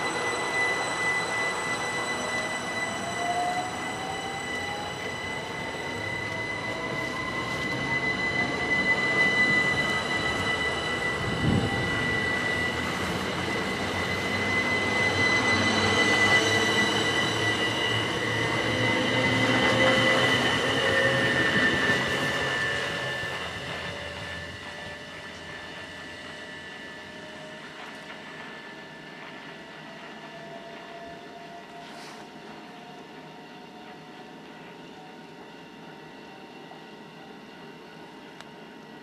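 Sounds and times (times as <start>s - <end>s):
high whistles: 0.0s - 29.8s
electric train motor whining: 0.0s - 31.7s
train wheels rumbling: 0.0s - 37.3s.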